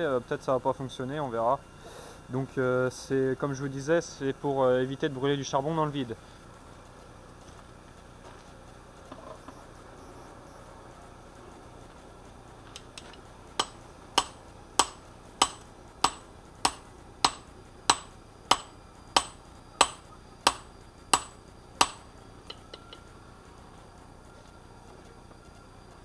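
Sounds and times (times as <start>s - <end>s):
hammer striking steel on anvil: 13.6s - 23.0s.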